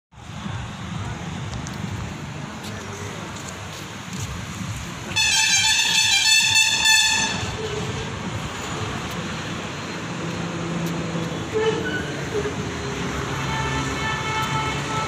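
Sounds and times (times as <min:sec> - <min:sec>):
outdoor background noise: 0:00.1 - 0:15.0
horn blowing a high note: 0:05.2 - 0:07.8.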